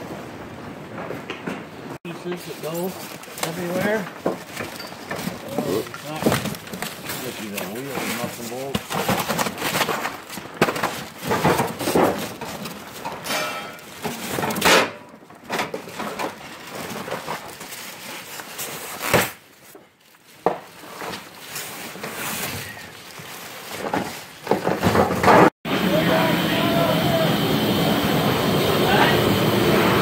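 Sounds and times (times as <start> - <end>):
cardboard and styrofoam rustling: 2.1 - 14.6, 15.2 - 25.5.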